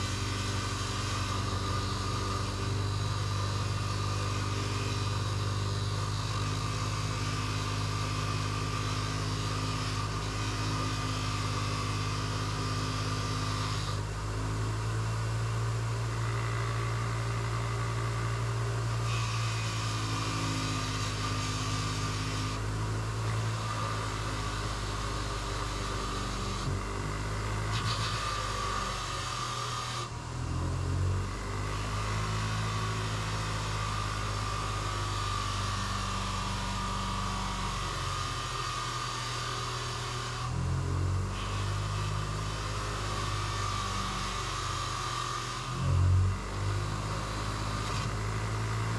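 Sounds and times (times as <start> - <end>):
electric tool motor humming: 0.0 - 48.9.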